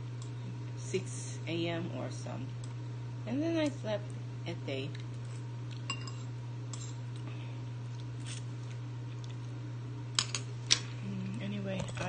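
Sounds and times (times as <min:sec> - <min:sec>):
steady low hum: 0:00.0 - 0:12.0
faint eating sounds: 0:04.9 - 0:12.0.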